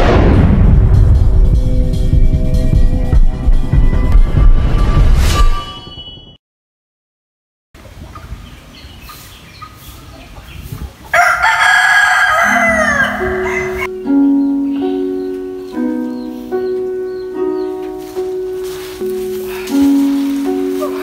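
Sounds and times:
rooster crowing: 0:11.1 - 0:13.9
slow music with held notes: 0:12.4 - 0:21.0.

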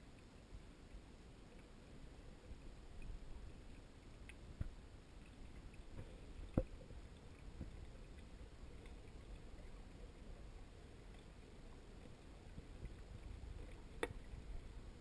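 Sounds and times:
muffled underwater rumble: 0:00.0 - 0:15.0.

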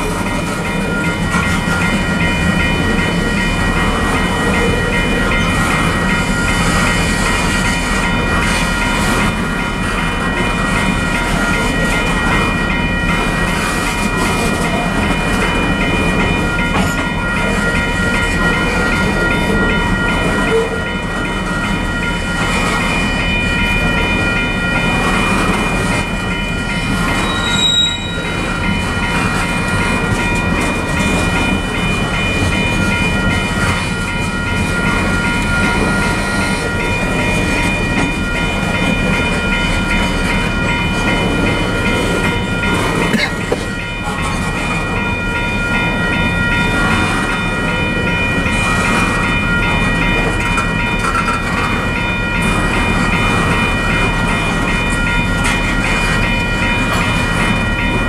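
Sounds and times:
train wheels rumbling on rails: 0:00.0 - 0:58.0
brief high squeak: 0:27.3 - 0:28.2.

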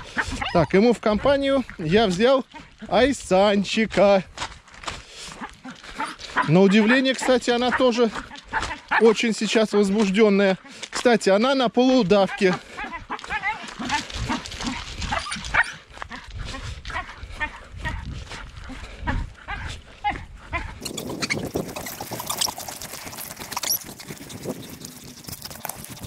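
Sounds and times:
dogs whining and yelping: 0:00.0 - 0:00.8, 0:05.3 - 0:09.1, 0:12.7 - 0:18.0, 0:18.7 - 0:26.0
scuffling and footsteps: 0:00.0 - 0:26.0.

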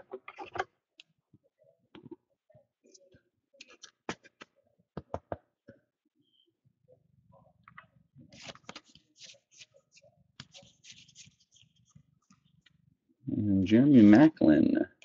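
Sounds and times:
faint clicks and taps: 0:02.9 - 0:05.8.

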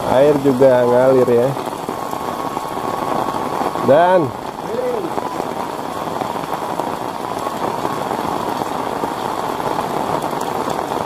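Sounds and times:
heavy rain falling: 0:00.0 - 0:11.0.

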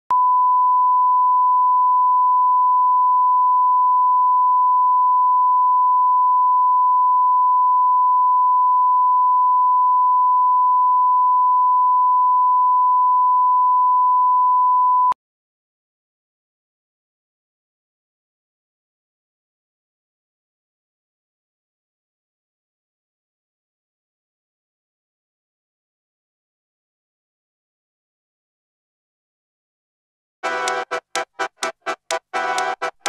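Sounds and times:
steady test tone: 0:30.4 - 0:33.0.

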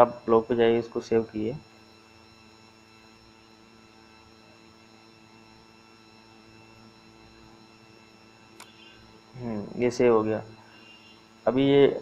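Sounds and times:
faint electrical hum with hiss: 0:08.3 - 0:12.0.

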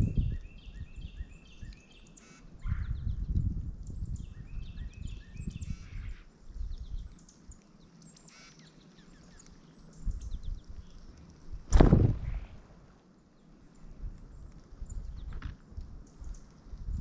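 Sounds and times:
faint bird chirps: 0:00.1 - 0:11.0
flutter of wings: 0:10.1 - 0:12.9.

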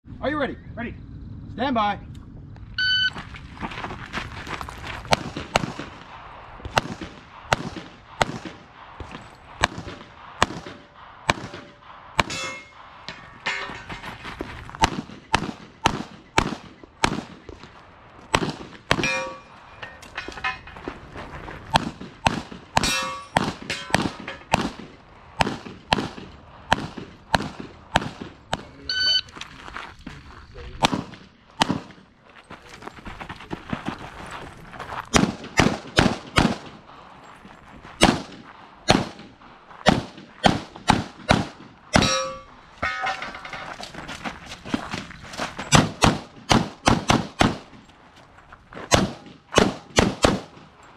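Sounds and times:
shot timer beep: 0:02.8 - 0:03.2, 0:28.9 - 0:29.3
rapid pistol fire: 0:05.1 - 0:12.4, 0:14.8 - 0:17.4, 0:18.3 - 0:19.1, 0:21.8 - 0:28.6, 0:35.1 - 0:36.8, 0:38.0 - 0:39.3, 0:39.9 - 0:41.7, 0:45.8 - 0:47.7, 0:48.9 - 0:50.6
steel targets ringing: 0:11.3 - 0:14.2, 0:18.9 - 0:20.9, 0:22.7 - 0:24.6, 0:41.9 - 0:43.9.

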